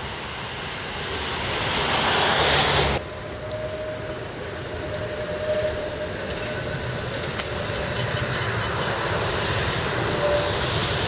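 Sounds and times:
tram rumbling: 0.0s - 11.0s
tram wheel clicks: 5.5s - 9.2s.

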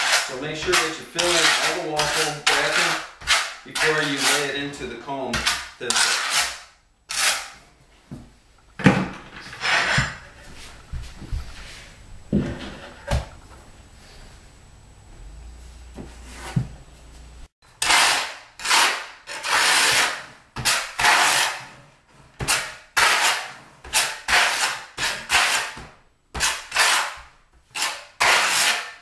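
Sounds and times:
trowel scraping mortar on tile: 0.0s - 7.6s, 9.4s - 10.3s, 17.8s - 21.8s, 22.4s - 25.8s, 26.4s - 29.0s
low hum: 10.1s - 17.5s.

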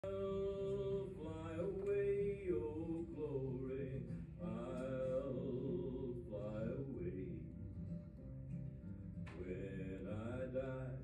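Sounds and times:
slow song with singing: 0.0s - 7.7s, 9.2s - 11.0s.

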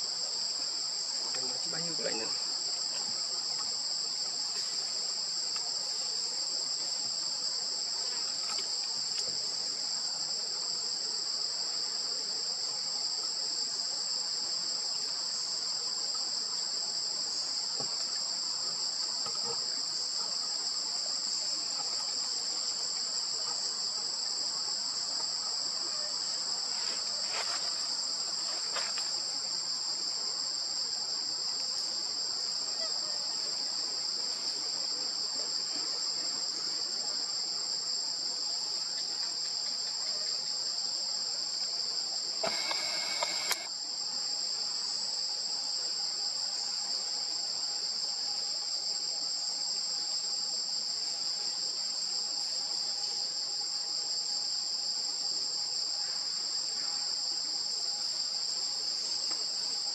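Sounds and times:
shrill insect chorus: 0.0s - 35.0s, 37.5s - 59.9s
high-pitched insect whine: 41.9s - 59.9s.

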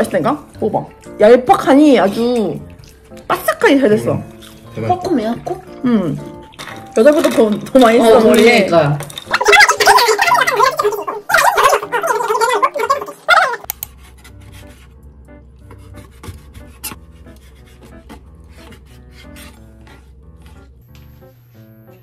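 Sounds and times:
light background music: 0.0s - 22.0s.

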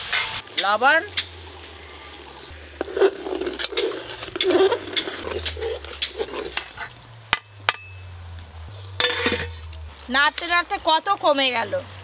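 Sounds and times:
ladle stirring boiling food in pot: 0.0s - 7.2s
ladle scraping metal pot: 1.3s - 7.1s, 9.0s - 10.5s.

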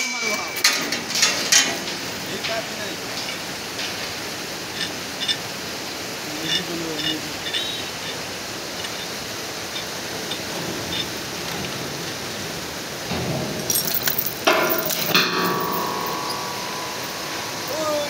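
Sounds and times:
faint metallic clinks: 0.0s - 5.5s, 13.1s - 18.0s
mountain stream rushing: 0.0s - 18.0s.

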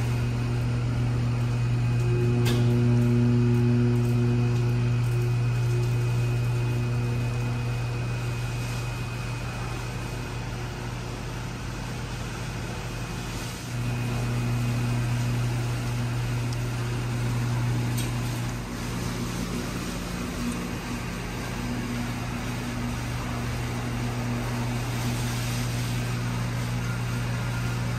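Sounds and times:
low mechanical hum: 0.0s - 27.9s.

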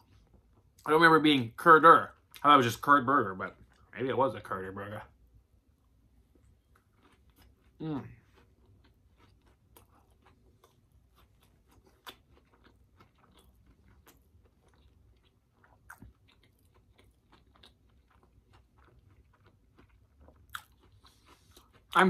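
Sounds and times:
person chewing: 6.2s - 22.0s.

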